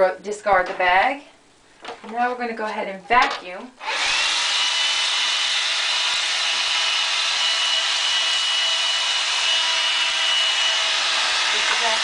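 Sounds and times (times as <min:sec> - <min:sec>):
handheld vacuum cleaner running: 0:03.8 - 0:12.0.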